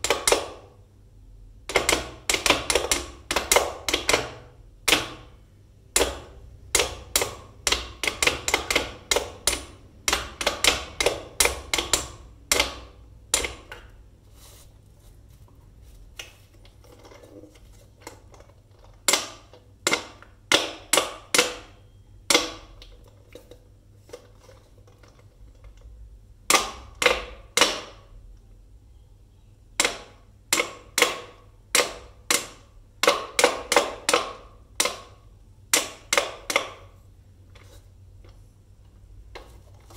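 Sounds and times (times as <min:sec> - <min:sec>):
toy mallets knocking wooden pegs: 0:01.7 - 0:05.3, 0:05.9 - 0:13.8.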